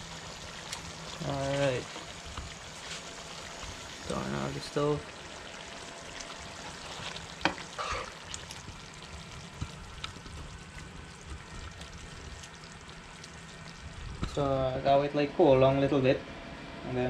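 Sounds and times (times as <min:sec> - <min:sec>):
curry sizzling in a pan: 0:00.0 - 0:14.4.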